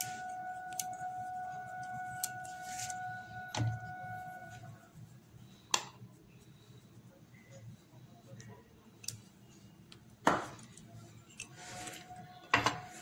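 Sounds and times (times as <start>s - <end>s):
steady high tone: 0.0s - 5.0s.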